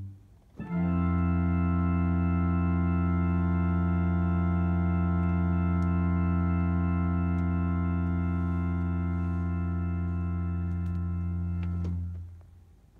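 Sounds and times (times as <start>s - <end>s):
church organ sustained chord: 0.0s - 12.2s.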